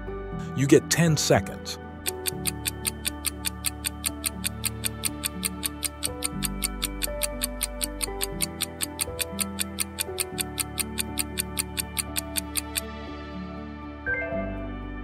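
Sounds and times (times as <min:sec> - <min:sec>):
background music chords: 0:00.0 - 0:15.0
countdown timer ticking: 0:02.0 - 0:12.9.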